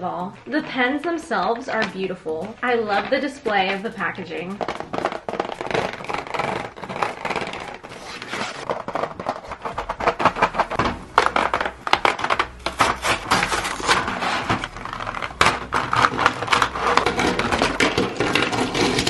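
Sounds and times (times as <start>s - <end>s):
packaging tearing and crinkling: 4.6s - 19.0s.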